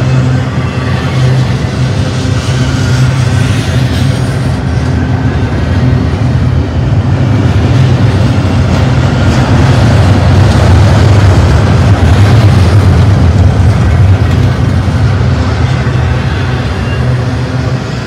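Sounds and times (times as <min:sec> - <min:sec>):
freight train wheels rumbling: 0:00.0 - 0:18.0.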